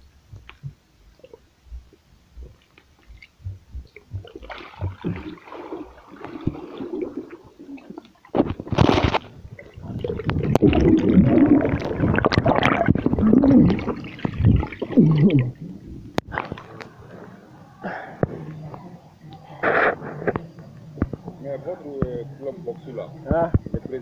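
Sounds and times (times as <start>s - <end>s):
underwater gurgling and bubbling: 3.4s - 17.6s
hissing rush of bubbles: 4.5s - 8.3s, 9.4s - 17.3s.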